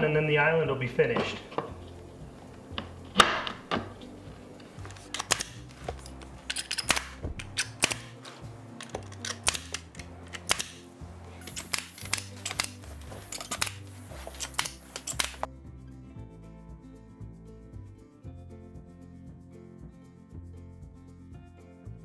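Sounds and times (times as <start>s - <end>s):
background music: 0.0s - 22.0s
pneumatic stapler snapping: 4.9s - 5.7s, 6.4s - 8.2s, 8.8s - 10.8s, 11.4s - 15.5s.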